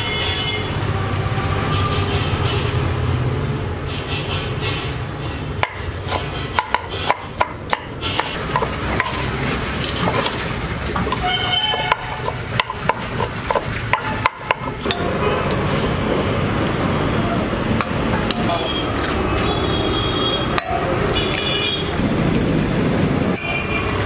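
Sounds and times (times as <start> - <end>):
cleaver chopping on wooden board: 5.6 - 9.3, 11.8 - 15.0.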